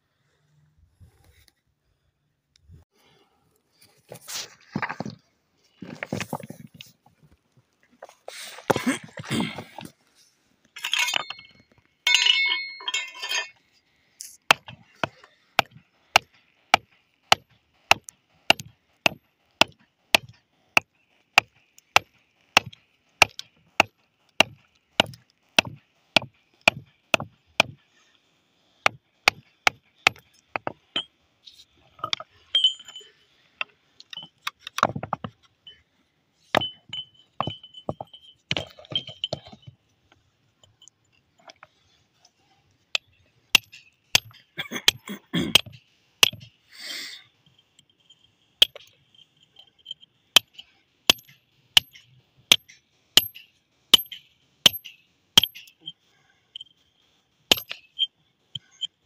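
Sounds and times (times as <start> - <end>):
metal tool clinking on boulder: 10.7 - 27.8, 28.9 - 41.9, 42.9 - 46.6, 47.5 - 56.0, 57.5 - 59.0.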